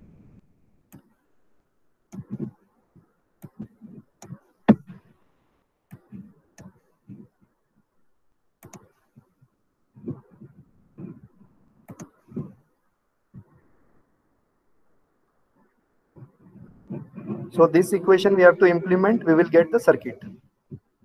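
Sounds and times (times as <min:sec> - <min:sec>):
computer mouse clicking: 0:00.9 - 0:01.2, 0:02.1 - 0:05.1, 0:05.9 - 0:07.3, 0:08.6 - 0:09.3, 0:10.0 - 0:12.7.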